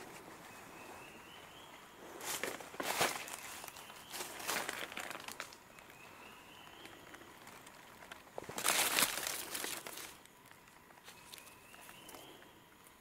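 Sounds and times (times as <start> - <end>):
dry leaves crunching: 2.2 - 5.6, 7.1 - 10.3.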